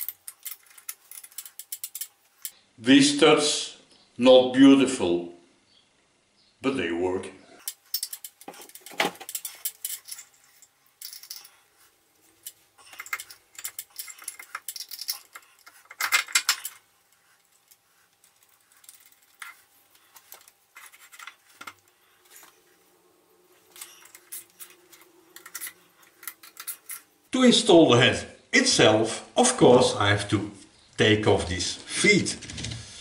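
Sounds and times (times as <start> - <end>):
metal parts clinking and rattling: 0.0 - 2.6, 7.6 - 22.8, 23.5 - 27.3
faint steady hum: 0.0 - 31.6.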